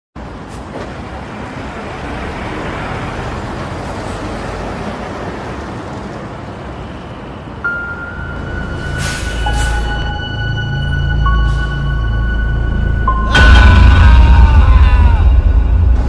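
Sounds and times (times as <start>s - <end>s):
car engine and road noise: 0.2s - 13.7s
eerie high tone music: 7.6s - 16.0s.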